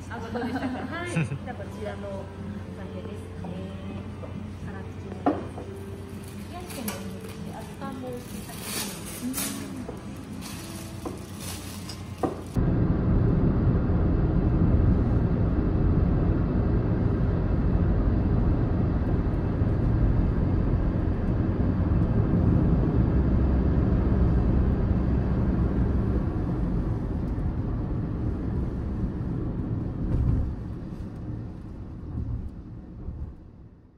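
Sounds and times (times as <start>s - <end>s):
car road and engine rumble: 9.1s - 33.9s.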